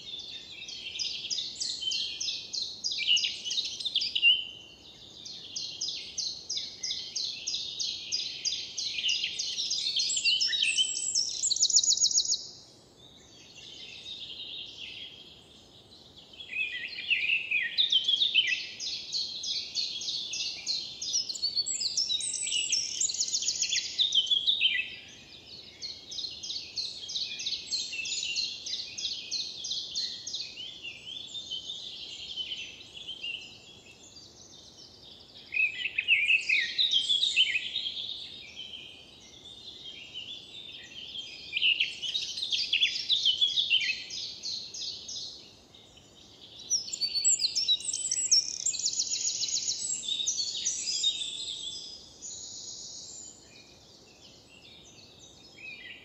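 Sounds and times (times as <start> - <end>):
songbirds singing trills: 0.0 - 56.0.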